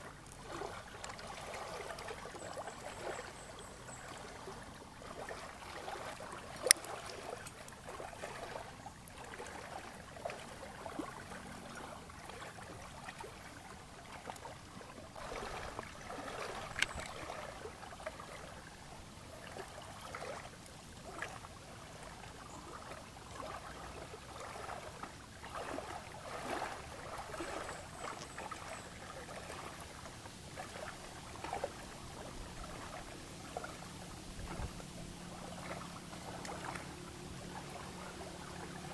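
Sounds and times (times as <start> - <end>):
small waves lapping at shore: 0.0 - 38.9.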